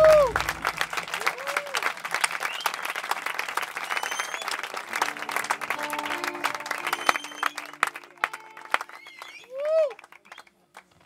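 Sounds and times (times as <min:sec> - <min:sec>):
amplified band instruments: 0:00.0 - 0:01.3, 0:04.8 - 0:09.3
audience applauding: 0:00.0 - 0:11.0.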